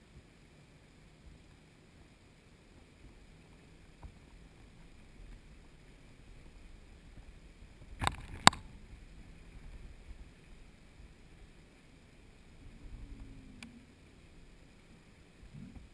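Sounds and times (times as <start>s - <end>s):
faint underwater hiss: 0.0s - 15.9s
sharp underwater clicks: 7.8s - 8.8s.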